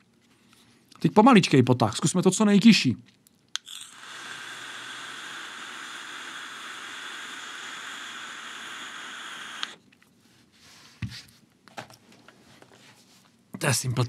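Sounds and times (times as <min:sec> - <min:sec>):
hissing air through vape: 0:03.6 - 0:09.8.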